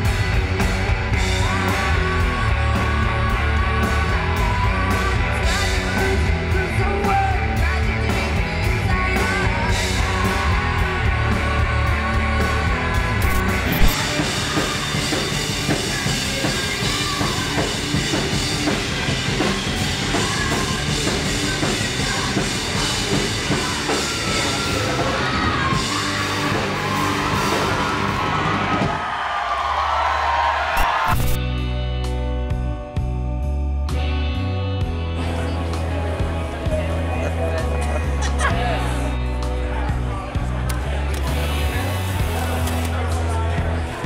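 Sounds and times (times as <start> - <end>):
rock band playing live: 0.0 - 44.0
person singing: 1.2 - 28.0.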